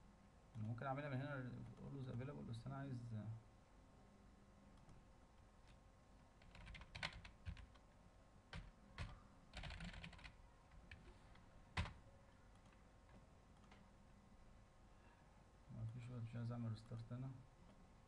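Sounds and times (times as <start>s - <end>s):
faint keyboard typing: 0.5s - 0.8s, 4.7s - 14.0s.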